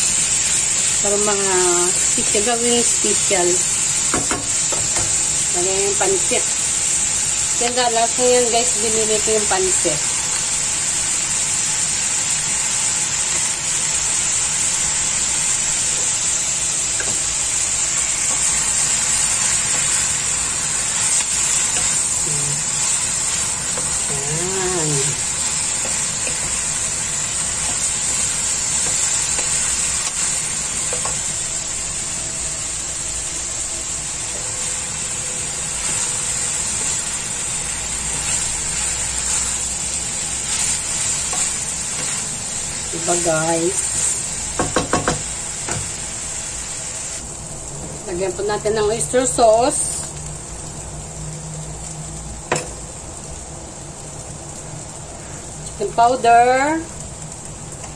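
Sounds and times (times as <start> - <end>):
noodles sizzling in a wok: 0.0 - 57.9.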